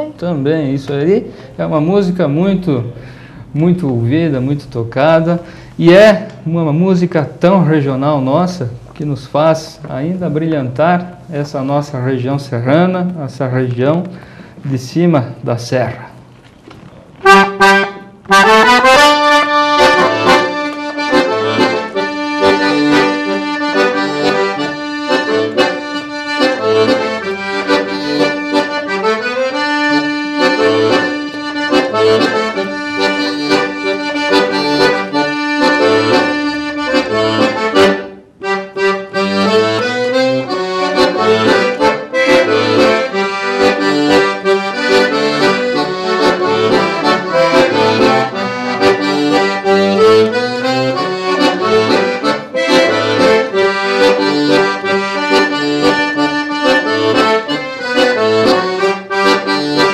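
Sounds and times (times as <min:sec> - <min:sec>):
accordion playing quick melody: 0:17.2 - 0:59.9.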